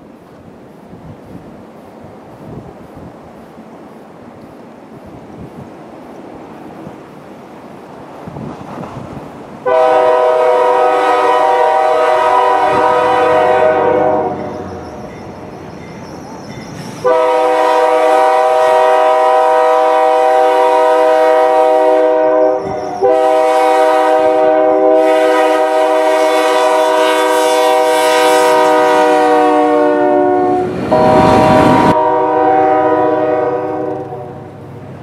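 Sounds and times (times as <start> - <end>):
passing train rushing: 0.0 - 35.0
locomotive air horn blasts: 9.6 - 14.6, 17.0 - 34.6.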